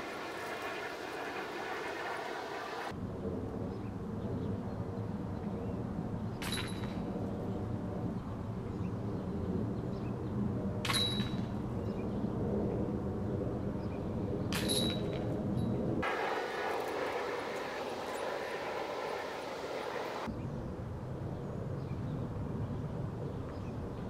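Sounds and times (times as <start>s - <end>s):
disc striking metal chains: 6.4s - 7.0s, 14.6s - 15.2s
low engine drone: 15.2s - 23.5s.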